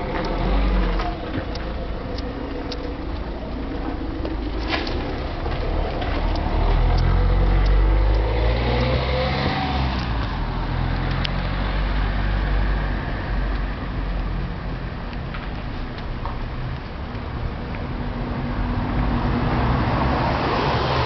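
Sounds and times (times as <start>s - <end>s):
car driving past: 0.0s - 14.4s
traffic hum: 0.0s - 21.0s.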